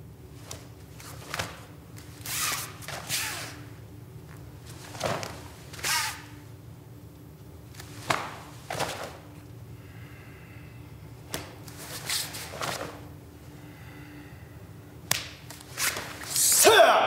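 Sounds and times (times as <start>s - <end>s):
low steady hum: 0.0s - 17.0s
cloth snapping and swishing: 0.4s - 3.6s, 4.7s - 6.3s, 7.7s - 9.4s, 11.3s - 13.1s, 15.1s - 16.4s.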